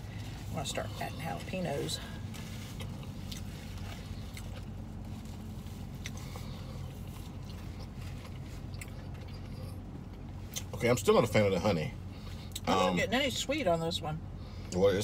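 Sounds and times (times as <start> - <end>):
low hum in car cabin: 0.0 - 15.0
people chewing: 2.3 - 10.7.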